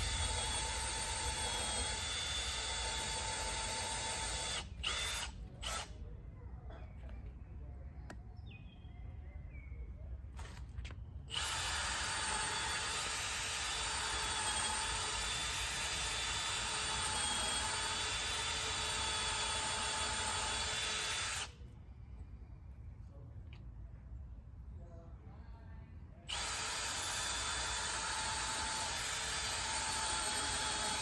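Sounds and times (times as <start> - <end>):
cordless drill boring into wall: 0.0 - 5.9, 11.3 - 21.5, 26.3 - 31.0.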